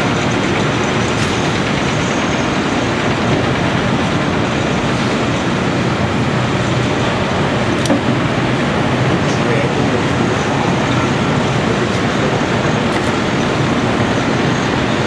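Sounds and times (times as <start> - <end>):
city noise: 0.0 - 15.0
excavator diesel engine working: 0.0 - 15.0.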